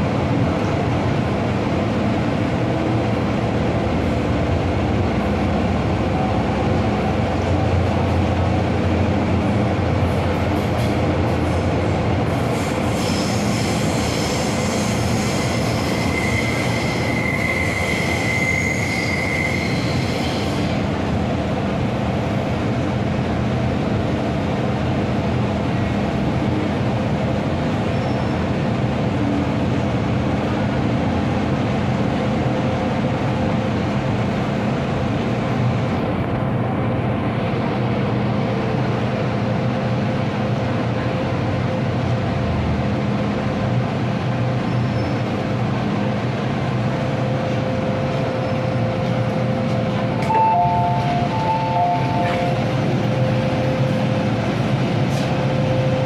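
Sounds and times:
metro train rumble: 0:00.0 - 0:56.0
train wheels squealing: 0:12.5 - 0:20.8, 0:27.9 - 0:28.4, 0:44.6 - 0:45.3.

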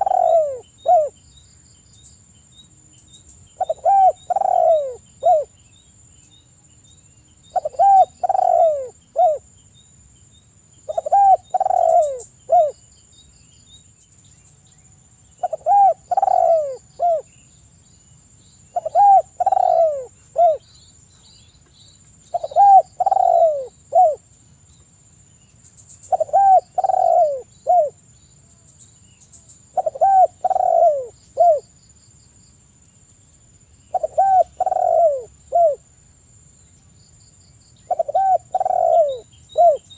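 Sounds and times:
dove cooing: 0:00.0 - 0:01.2, 0:03.6 - 0:05.5, 0:07.5 - 0:09.4, 0:10.9 - 0:12.8, 0:15.4 - 0:17.3, 0:18.7 - 0:20.6, 0:22.3 - 0:24.2, 0:26.1 - 0:28.0, 0:29.7 - 0:31.7, 0:33.9 - 0:35.8, 0:37.9 - 0:39.9.

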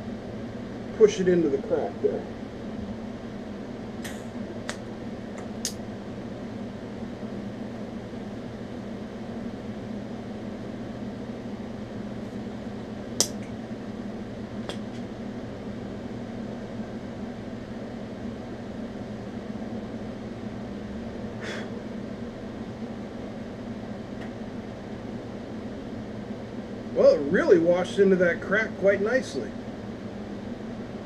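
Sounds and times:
cooling fan: 0:00.0 - 0:31.0
welding machine electrical hum: 0:00.0 - 0:31.0
sharp click: 0:04.0 - 0:04.8, 0:13.2 - 0:13.6.

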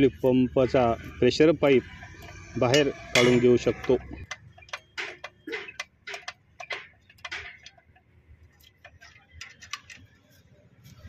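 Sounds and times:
metal clicks of bolt spinning: 0:01.8 - 0:10.2.

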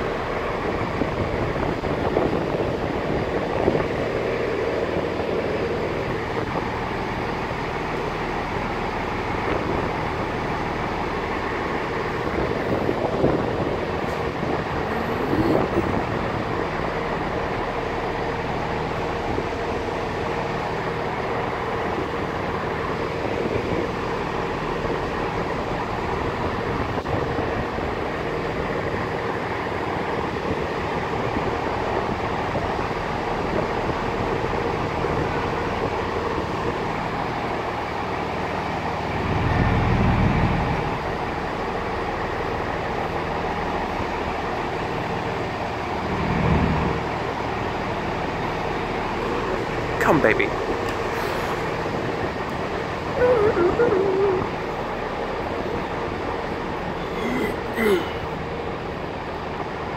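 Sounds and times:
diesel train engines humming: 0:00.0 - 0:59.9.

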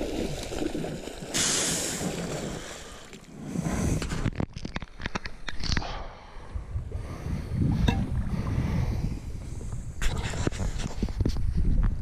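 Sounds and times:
wind buffeting microphone: 0:06.5 - 0:12.0.

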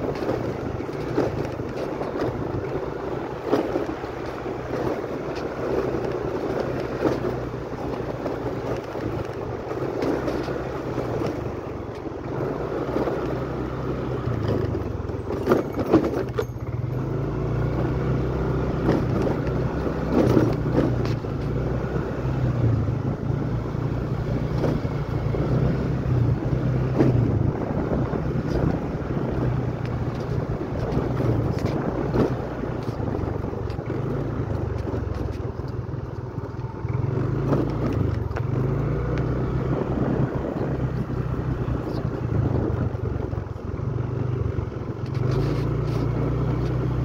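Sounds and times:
small motorcycle engine: 0:00.0 - 0:47.0
wind over microphone: 0:18.6 - 0:47.0.

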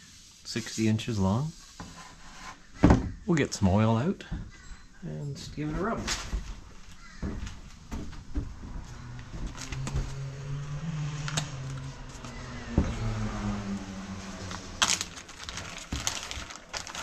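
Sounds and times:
plastic bag crinkling: 0:14.7 - 0:17.0.

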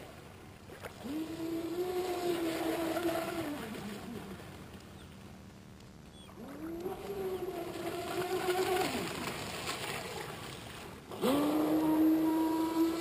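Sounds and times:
rc boat motor whining: 0:11.1 - 0:13.0.

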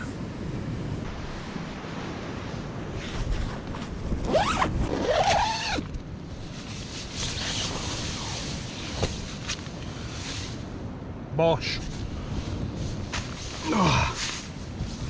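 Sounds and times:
tent zip being pulled: 0:03.0 - 0:05.9.

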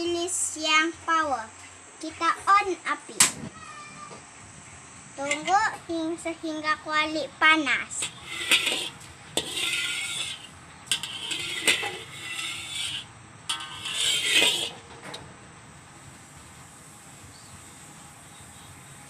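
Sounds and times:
metal ladle scraping wok: 0:05.2 - 0:05.6, 0:07.9 - 0:15.3.

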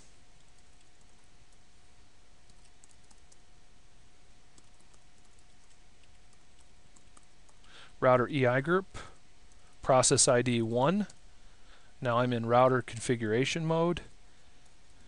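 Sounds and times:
computer keyboard keystrokes: 0:02.4 - 0:03.4, 0:04.5 - 0:07.6.

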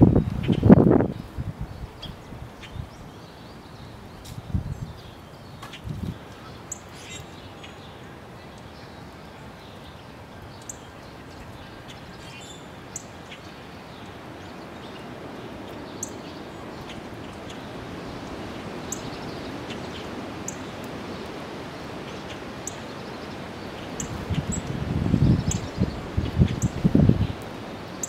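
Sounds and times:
outdoor background hiss: 0:00.0 - 0:28.0
songbirds chirping: 0:00.0 - 0:28.0.

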